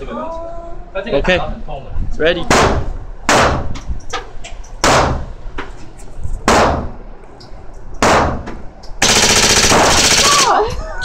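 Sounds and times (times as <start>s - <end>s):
gunshots echoing: 6.5s - 6.9s, 8.0s - 8.4s, 9.0s - 10.6s.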